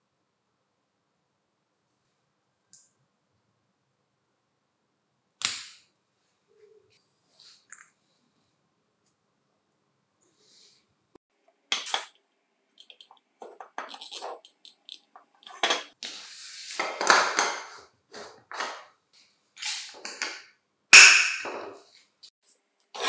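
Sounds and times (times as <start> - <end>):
plastic parts rubbing: 12.8 - 16.1.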